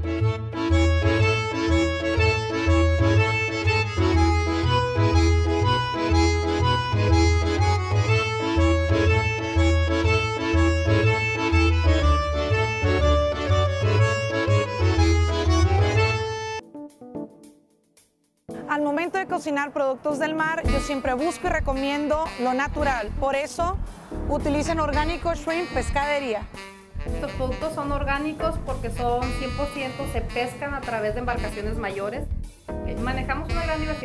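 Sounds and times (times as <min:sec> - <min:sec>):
instrumental background music: 0:00.0 - 0:34.0
steady bass beat: 0:00.8 - 0:16.4, 0:20.7 - 0:22.0, 0:22.7 - 0:34.0.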